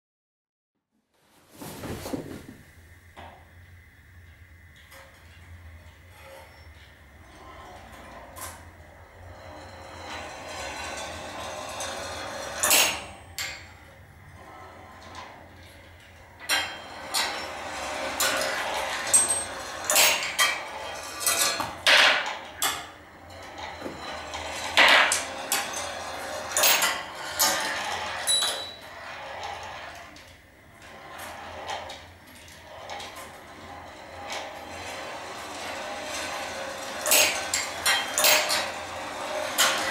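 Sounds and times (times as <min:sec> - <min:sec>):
marbles rolling on wire tracks: 0:05.0 - 0:13.8, 0:14.4 - 0:39.9
marbles clinking on metal rails: 0:16.5 - 0:30.1, 0:32.5 - 0:39.9.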